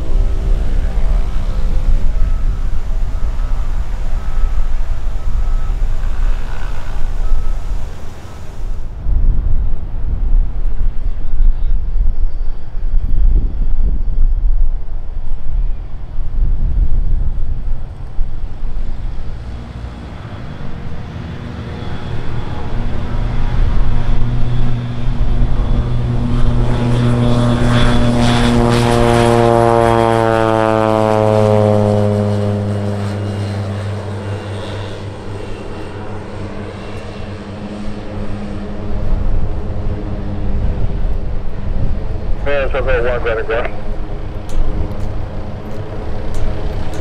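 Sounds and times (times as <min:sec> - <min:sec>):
propeller plane taking off: 0:00.0 - 0:47.0.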